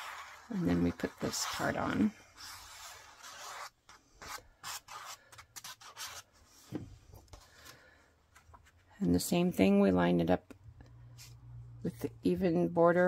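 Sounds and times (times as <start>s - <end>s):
glue stick scratching on cardstock: 0.0s - 1.8s, 2.4s - 6.3s.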